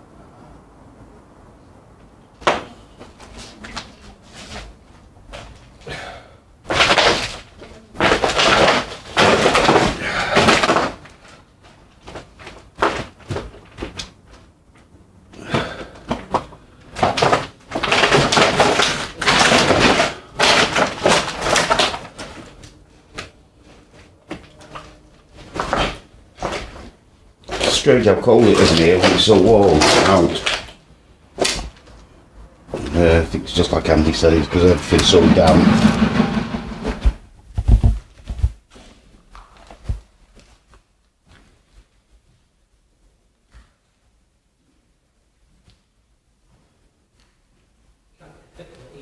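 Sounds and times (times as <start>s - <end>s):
footsteps crunching over rubble: 23.6s - 30.8s
sharp knocks: 34.8s - 38.0s.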